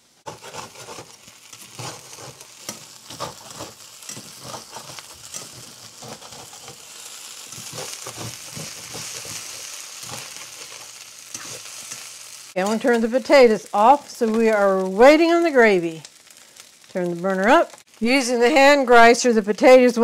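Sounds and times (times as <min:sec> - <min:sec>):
potatoes sizzling in a skillet: 0:00.0 - 0:20.0
metal turner scraping a pan: 0:00.2 - 0:13.2.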